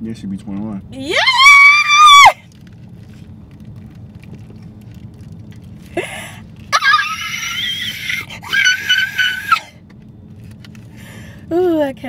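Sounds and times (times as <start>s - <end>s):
low hum in car cabin: 0.0s - 12.0s
woman screaming: 1.0s - 2.4s, 6.7s - 9.7s.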